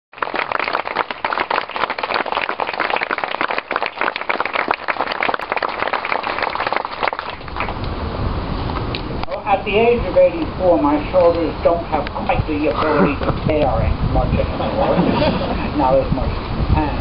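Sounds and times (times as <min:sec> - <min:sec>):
crowd applauding: 0:00.1 - 0:07.8.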